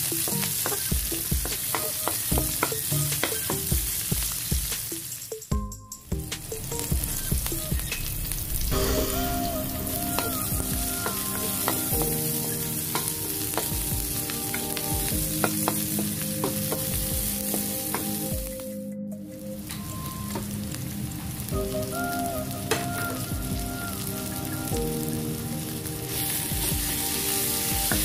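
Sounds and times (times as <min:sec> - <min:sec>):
food sizzling in hot oil: 0:00.0 - 0:18.4, 0:19.8 - 0:28.0.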